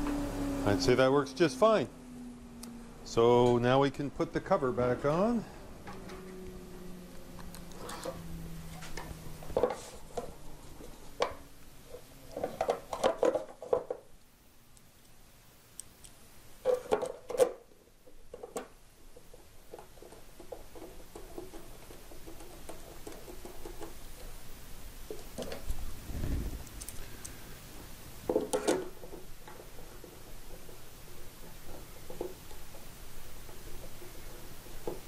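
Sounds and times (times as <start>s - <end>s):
plastic clunking against metal: 28.3s - 32.8s.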